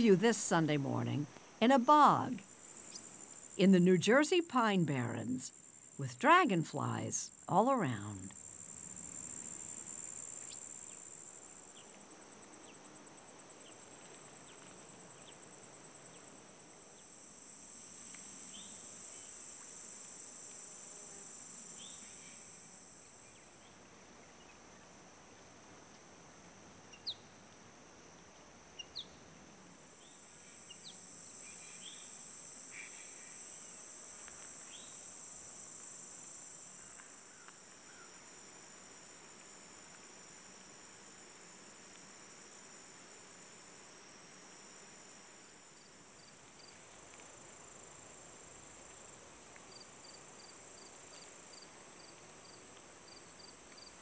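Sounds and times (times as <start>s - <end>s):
high-pitched insect chorus: 0.0s - 3.6s, 8.3s - 13.0s, 30.0s - 54.0s.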